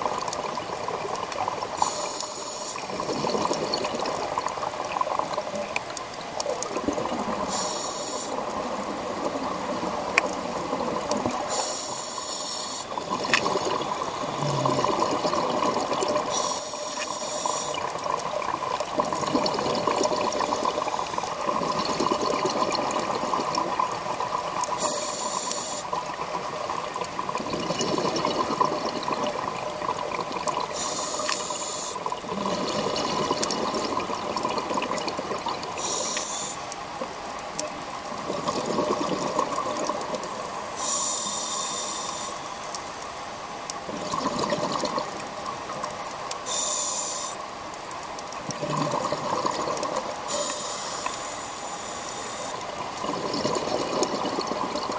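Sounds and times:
exhaled air bubbling: 0.0s - 54.9s
faint steady hum: 0.0s - 54.9s
regulator inhale hiss: 1.8s - 2.9s, 7.5s - 8.4s, 11.4s - 13.0s, 16.3s - 17.9s, 24.8s - 26.0s, 30.7s - 32.1s, 35.8s - 36.8s, 40.2s - 42.8s, 46.4s - 47.5s, 50.3s - 52.6s.

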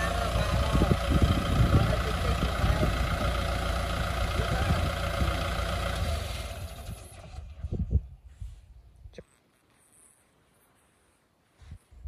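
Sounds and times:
tractor diesel engine running: 0.0s - 8.2s.

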